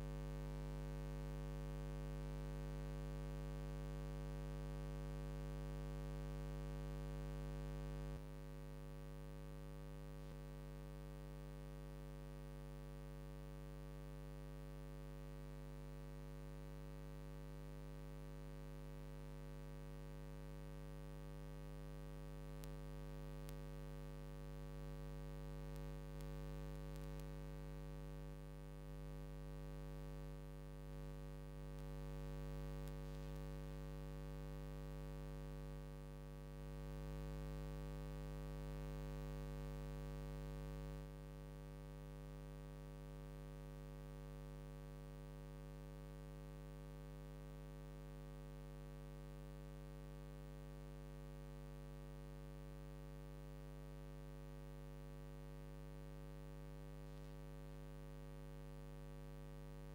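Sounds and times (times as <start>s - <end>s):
steady electrical hum: 21.7s - 35.8s.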